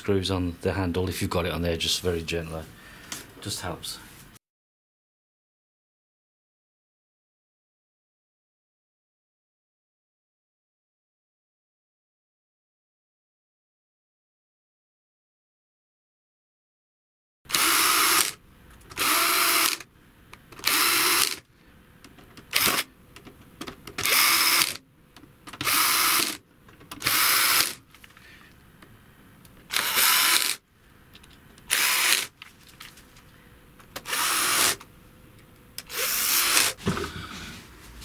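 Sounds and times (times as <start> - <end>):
power screwdriver running: 17.5 - 19.9, 20.6 - 21.4, 22.5 - 22.9, 24.0 - 24.8, 25.6 - 26.4, 27.0 - 27.9, 29.7 - 30.6, 31.7 - 32.4, 34.0 - 34.8, 35.8 - 36.8.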